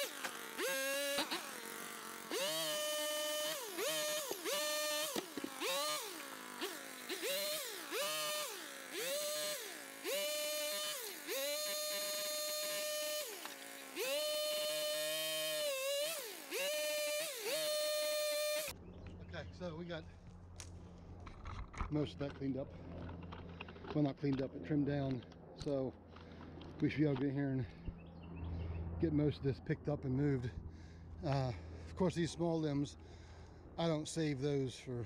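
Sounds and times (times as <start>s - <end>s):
pole saw motor whining: 0.0s - 18.8s.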